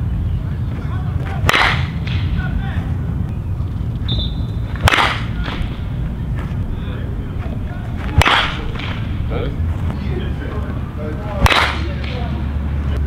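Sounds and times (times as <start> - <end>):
metal bat pinging balls: 8.0 - 9.3.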